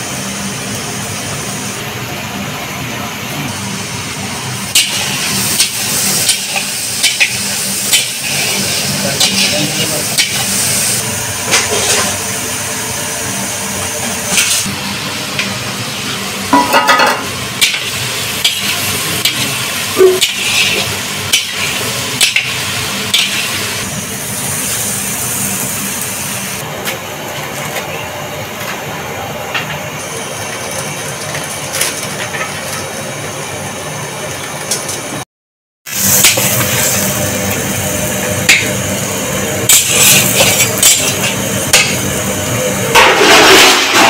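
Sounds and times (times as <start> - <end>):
vegetables sizzling in oil: 3.2 - 26.6, 35.9 - 44.0
metal spatula scraping a pan: 9.2 - 9.6.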